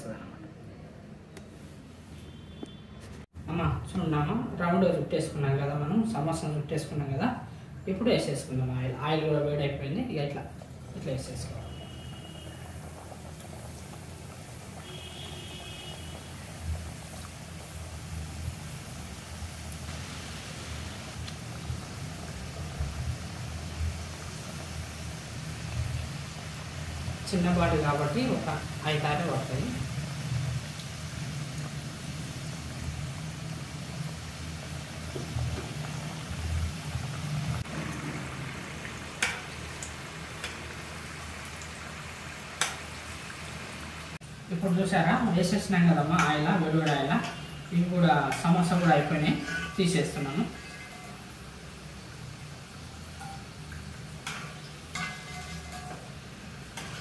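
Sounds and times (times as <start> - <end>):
food deep-frying in oil: 2.2 - 57.0.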